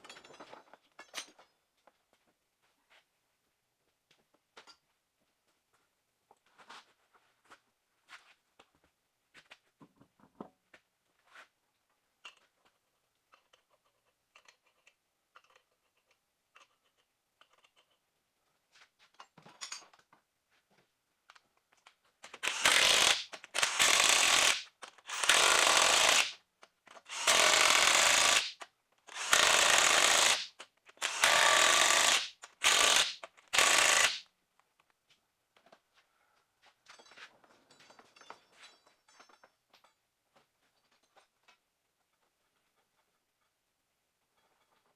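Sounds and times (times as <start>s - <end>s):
impact wrench bursts: 22.3s - 26.4s, 27.0s - 34.3s.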